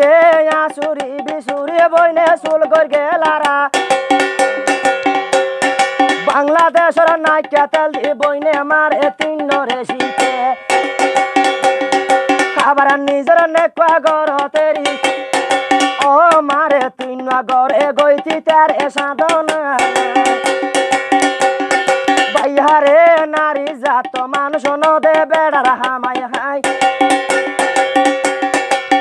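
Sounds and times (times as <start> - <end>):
man singing: 0.0 - 3.9, 6.1 - 10.8, 12.5 - 21.0, 22.1 - 27.4
fast busy percussion: 0.0 - 29.0
held instrumental chords: 3.7 - 7.6, 9.2 - 12.9, 14.6 - 17.3, 18.2 - 23.2, 26.6 - 29.0.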